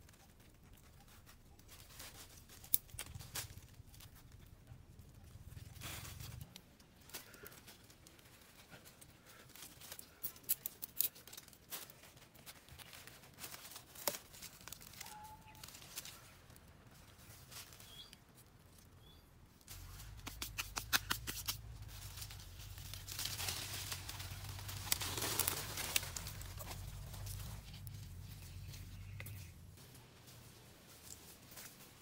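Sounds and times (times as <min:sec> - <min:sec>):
hands rustling dry leaves: 0:05.7 - 0:18.5, 0:19.6 - 0:32.0
sticks snapping: 0:20.0 - 0:21.7, 0:22.8 - 0:27.4.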